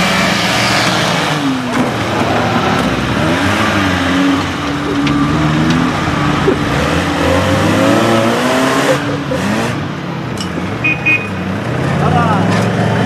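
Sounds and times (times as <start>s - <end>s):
engine revving hard: 0.0s - 10.0s.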